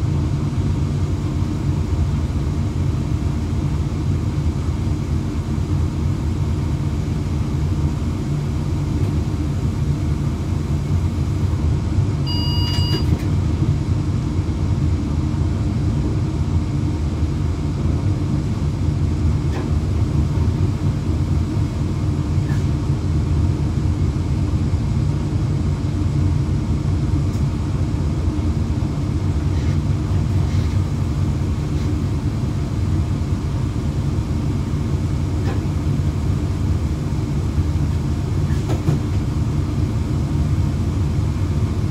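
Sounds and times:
train rumble inside cab: 0.0 - 41.9
short electronic beep: 12.3 - 13.1.

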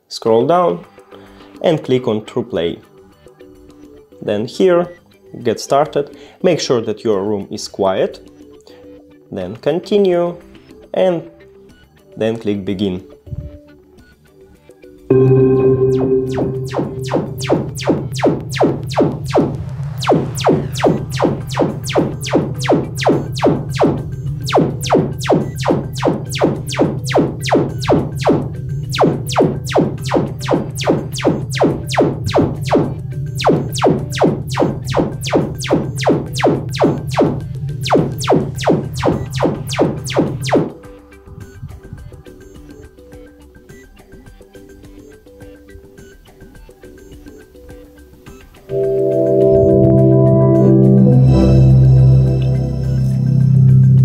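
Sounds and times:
rapid sweeping test tones: 15.1 - 40.8, 48.7 - 54.0.

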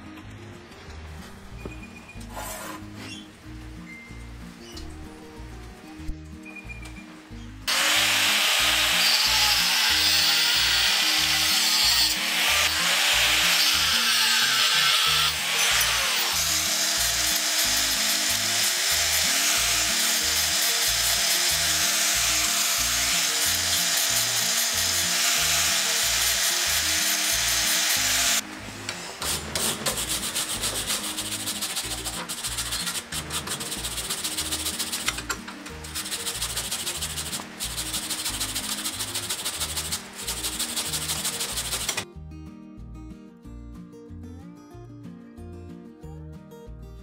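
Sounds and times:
background music with steady beat: 0.0 - 47.0
angle grinder cutting steel: 7.7 - 42.0.

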